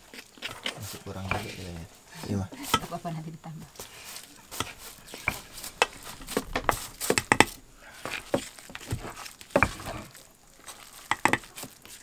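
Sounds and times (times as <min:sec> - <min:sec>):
spatula stirring batter in bowl: 0:00.0 - 0:03.0, 0:03.7 - 0:12.0
pestle knocking on stone mortar: 0:04.5 - 0:09.9, 0:11.0 - 0:11.7.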